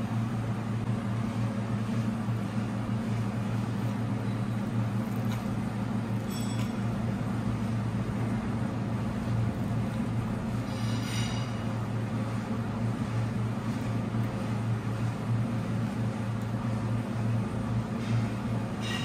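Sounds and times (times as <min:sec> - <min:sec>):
steady low hum: 0:00.0 - 0:19.0
faint clinks: 0:06.2 - 0:06.9.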